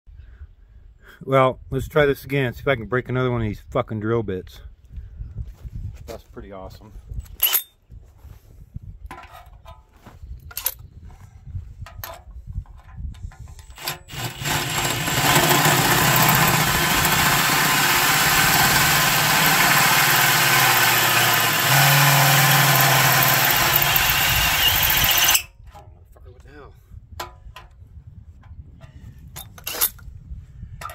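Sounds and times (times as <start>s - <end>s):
hole saw grinding through steel: 13.6s - 25.5s
drill motor humming: 13.8s - 25.4s.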